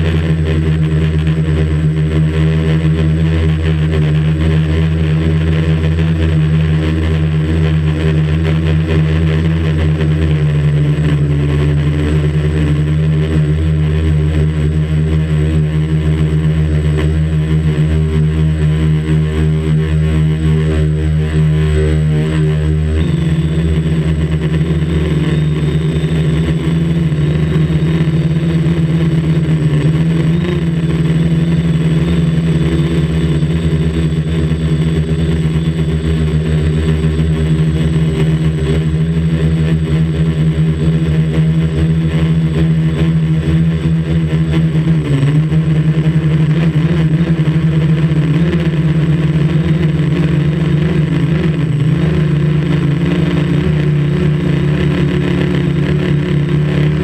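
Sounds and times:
quadcopter propellers buzzing: 0.0s - 57.0s.

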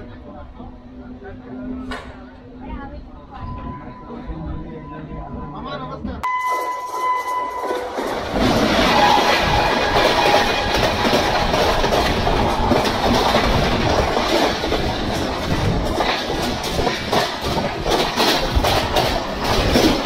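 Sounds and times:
steady locomotive tone: 0.0s - 20.0s
train coaches rattling past: 6.2s - 20.0s
wheels clacking over rail joints: 6.2s - 20.0s.

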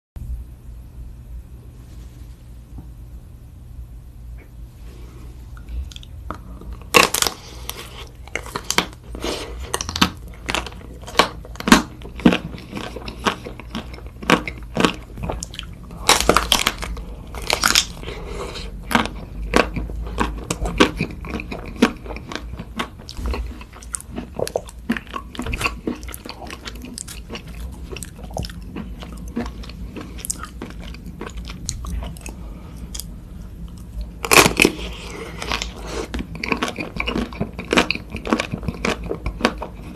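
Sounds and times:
chewing: 5.6s - 39.9s
chocolate shell crunching: 6.8s - 33.1s.

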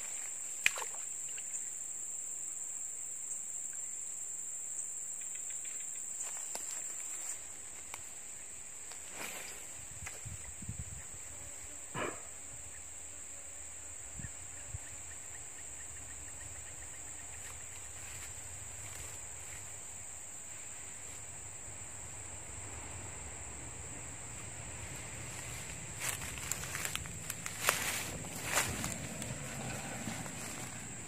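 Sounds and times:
insects droning: 0.0s - 31.0s
low outdoor rumble: 15.4s - 31.0s.

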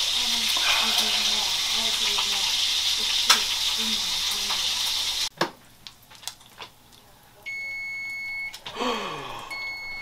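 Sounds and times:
bacon sizzling in a frying pan: 0.0s - 6.7s
electric range timer beep: 7.5s - 8.6s, 9.5s - 10.0s.

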